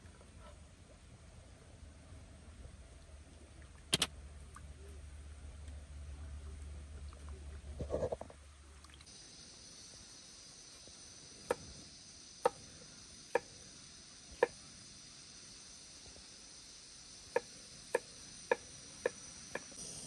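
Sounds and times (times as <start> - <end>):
insects chirring: 9.1 - 20.0.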